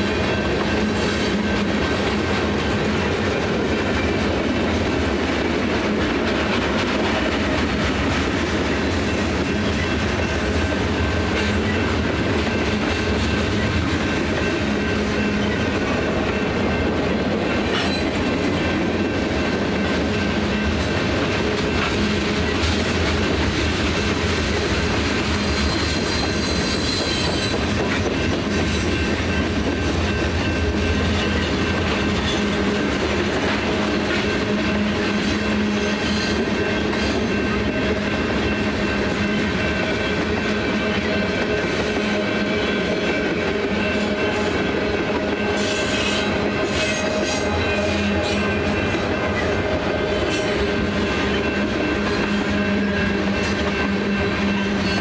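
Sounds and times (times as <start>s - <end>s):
train rumbling past: 0.0s - 55.0s
wheel squeal: 25.4s - 27.6s.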